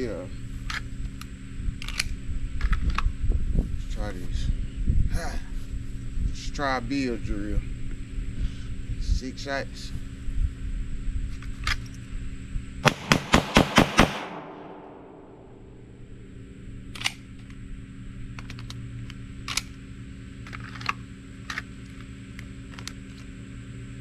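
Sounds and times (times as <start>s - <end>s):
pistol shots in rapid succession: 12.8s - 15.4s.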